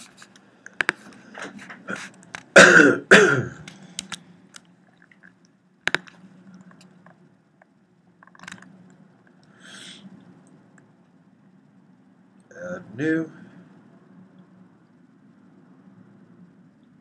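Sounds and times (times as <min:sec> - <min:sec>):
low steady hum: 0:00.0 - 0:17.0
computer mouse clicks: 0:00.2 - 0:01.2, 0:03.6 - 0:04.7, 0:05.9 - 0:07.2, 0:08.2 - 0:09.6.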